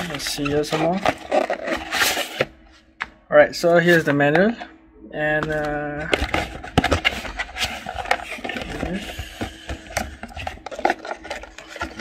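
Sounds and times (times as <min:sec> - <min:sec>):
paper rustling: 0:00.0 - 0:02.5, 0:05.4 - 0:12.0.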